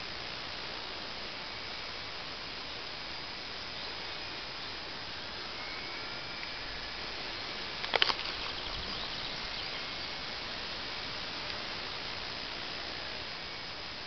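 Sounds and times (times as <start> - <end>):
model plane motor whine: 0.0 - 14.0
steady hiss: 0.0 - 14.0
sharp clicks: 7.8 - 8.6.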